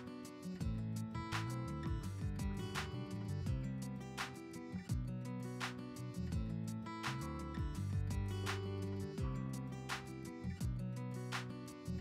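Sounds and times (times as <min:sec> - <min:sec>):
background music with drum beat: 0:00.0 - 0:12.0.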